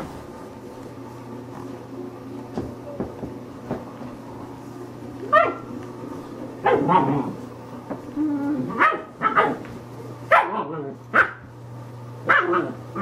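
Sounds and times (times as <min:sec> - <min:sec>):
puppy barking: 0:05.3 - 0:05.7, 0:06.6 - 0:07.3, 0:08.7 - 0:09.7, 0:10.3 - 0:11.5, 0:12.2 - 0:13.0
puppy growling: 0:06.6 - 0:07.5, 0:08.1 - 0:09.7.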